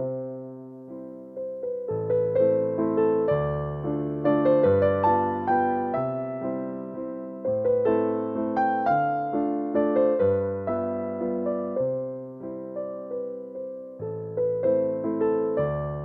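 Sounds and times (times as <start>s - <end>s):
gentle piano music: 0.0s - 16.0s.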